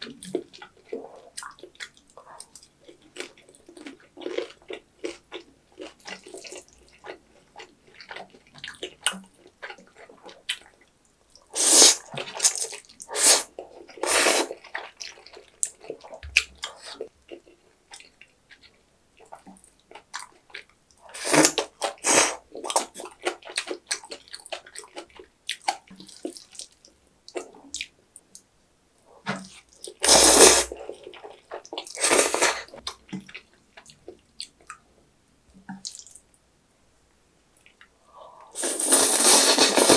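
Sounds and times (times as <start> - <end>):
chewing and mouth clicks: 0.0 - 28.4
loud wet noodle slurps: 11.6 - 14.6, 21.1 - 22.4, 30.0 - 30.8, 31.9 - 32.8, 38.5 - 39.9.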